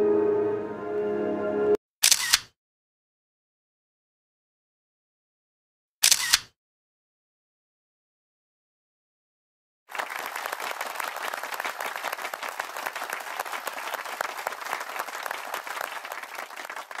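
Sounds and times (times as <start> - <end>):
crowd applause: 9.9 - 17.0.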